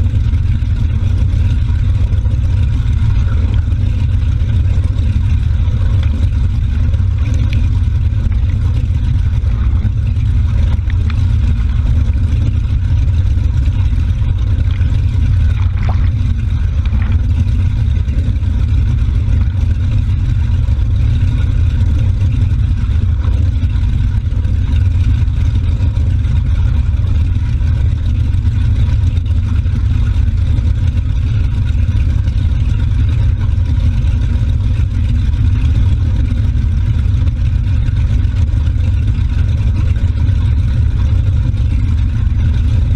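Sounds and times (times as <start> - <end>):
motorboat engine rumbling: 0.0 - 42.9
water splashing in wake: 0.0 - 42.9.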